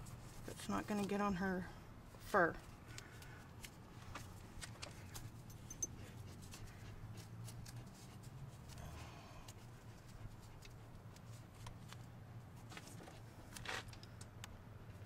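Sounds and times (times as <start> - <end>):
tape rustling and clicking: 2.6 - 8.8, 9.5 - 15.0.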